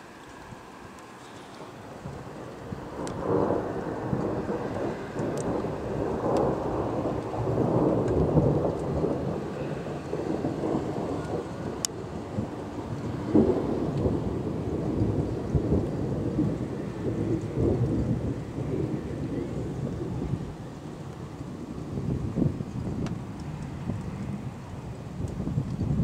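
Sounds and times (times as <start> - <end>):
rolling thunder rumbling: 1.6 - 26.0
faint sharp ticks: 5.2 - 5.6.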